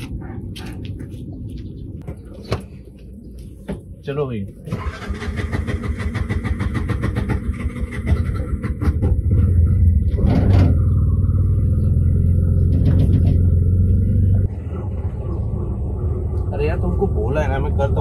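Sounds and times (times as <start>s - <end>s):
auto-rickshaw engine puttering: 4.7s - 18.0s.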